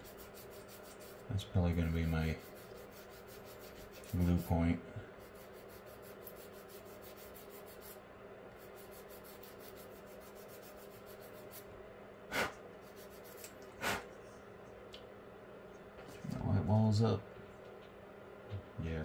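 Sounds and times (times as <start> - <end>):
sanding stick strokes on plastic: 0.0 - 8.0, 8.6 - 11.7, 12.8 - 13.6
short puffs of breath: 12.3 - 12.6, 13.8 - 14.1.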